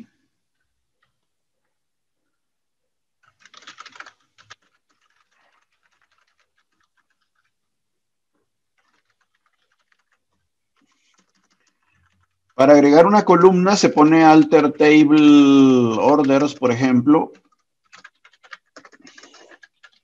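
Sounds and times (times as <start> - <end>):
computer keyboard typing: 3.2 - 7.6, 8.7 - 20.0.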